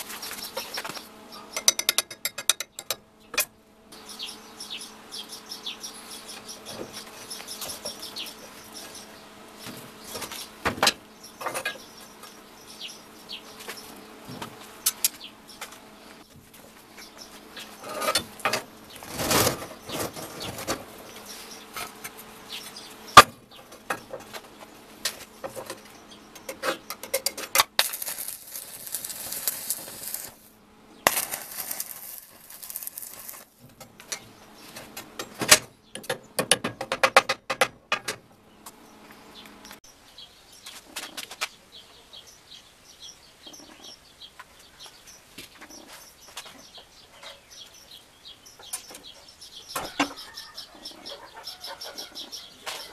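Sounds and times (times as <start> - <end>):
welding arc crackling: 27.5 - 33.8.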